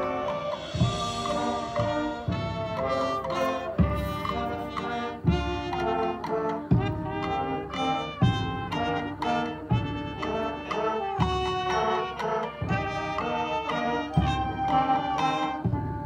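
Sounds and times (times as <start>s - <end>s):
marching band brass chords: 0.0s - 16.0s
loud low drum hit: 0.5s - 3.1s.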